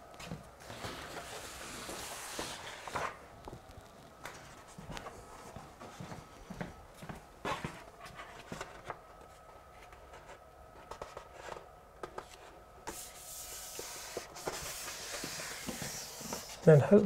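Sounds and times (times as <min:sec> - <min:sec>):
paper rubbing against wall: 0:00.6 - 0:03.2, 0:12.9 - 0:16.7.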